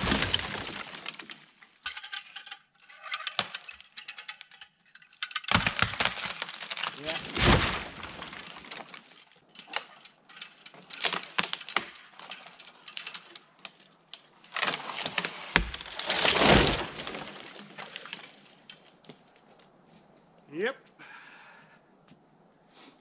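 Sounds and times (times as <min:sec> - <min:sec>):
brush crackling: 0:00.0 - 0:01.9, 0:05.4 - 0:21.0
branches cracking and snapping: 0:00.0 - 0:19.8.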